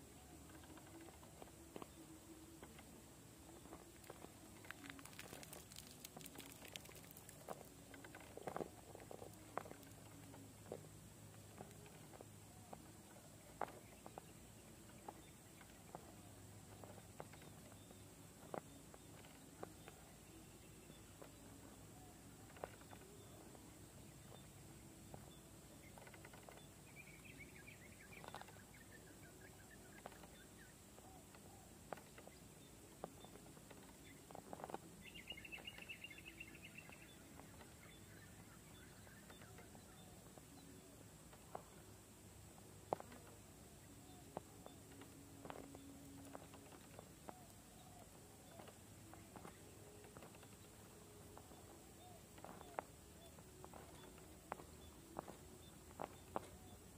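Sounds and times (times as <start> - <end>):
faint low hum: 0.0 - 56.9
toy car tyres clicking on rock: 4.0 - 10.0
faint bird calls: 43.0 - 56.9.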